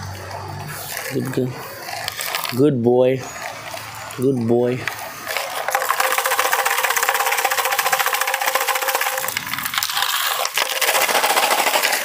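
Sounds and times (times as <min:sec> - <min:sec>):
steady ringing tone: 0:03.2 - 0:09.9
metallic rattling of shaken pipe: 0:05.3 - 0:12.0.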